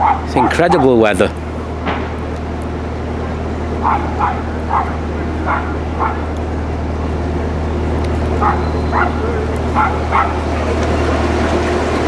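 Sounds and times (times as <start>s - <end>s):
dog yapping: 0.0s - 0.9s, 3.8s - 6.3s, 8.4s - 10.4s
boat engine running: 0.0s - 12.0s.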